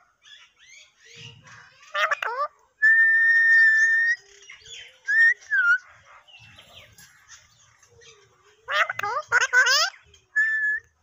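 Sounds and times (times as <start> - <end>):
parakeet squawky calls: 0.2 - 10.8
parakeet whistling: 9.3 - 10.9.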